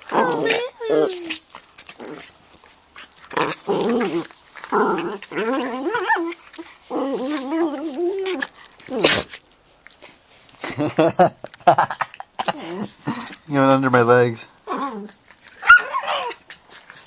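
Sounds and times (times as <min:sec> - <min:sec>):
dog whining: 0:00.0 - 0:02.4, 0:03.3 - 0:09.4, 0:14.6 - 0:16.5.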